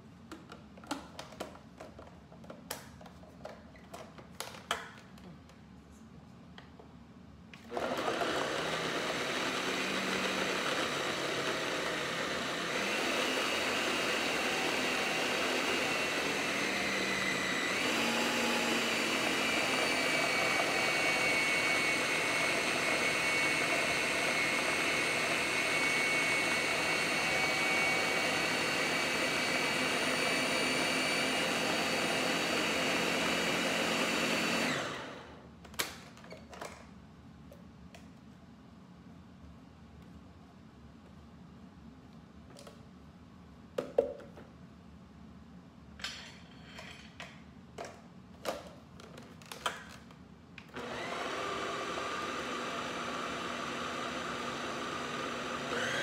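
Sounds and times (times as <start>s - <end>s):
blender running: 7.7s - 35.4s, 50.8s - 56.0s.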